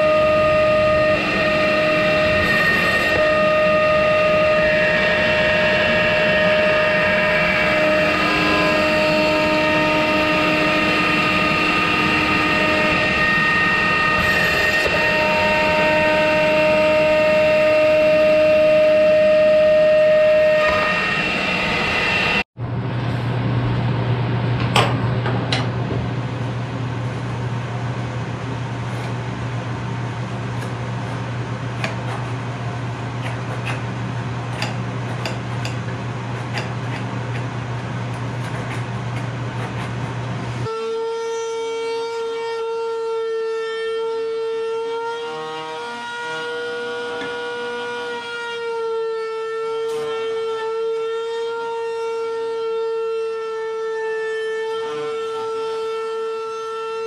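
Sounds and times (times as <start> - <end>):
router whining: 0.0 - 22.5, 45.3 - 48.3
machine humming: 0.0 - 40.7.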